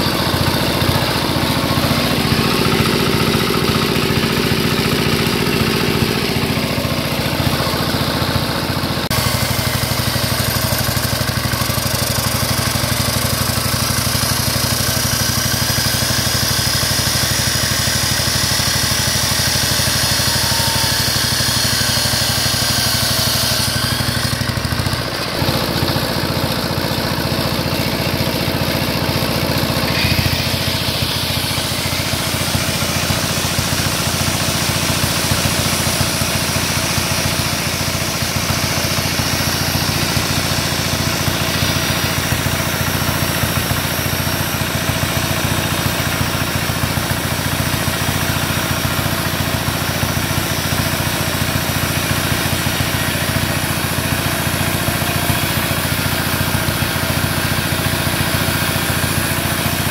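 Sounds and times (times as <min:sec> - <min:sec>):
angle grinder cutting steel: 0:00.0 - 0:59.9
chop saw screeching through metal: 0:00.0 - 0:59.9
small engine running under load: 0:00.0 - 0:59.9.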